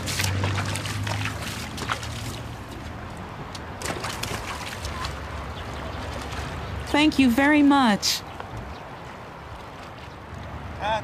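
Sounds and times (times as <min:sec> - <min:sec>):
small water splashes: 0:00.0 - 0:07.0
river water flowing: 0:00.0 - 0:10.9.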